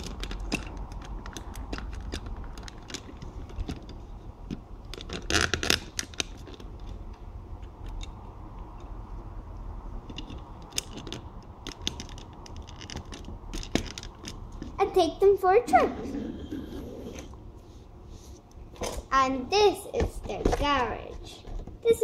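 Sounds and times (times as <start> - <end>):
plastic toy parts clicking and scraping: 0.0 - 8.9, 10.0 - 14.8.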